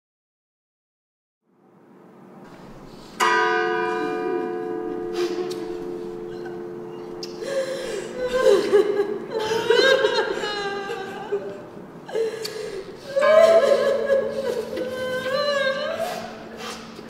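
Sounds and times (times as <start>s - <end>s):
steady held tone: 2.5s - 10.4s
women sobbing and wailing: 4.0s - 16.6s.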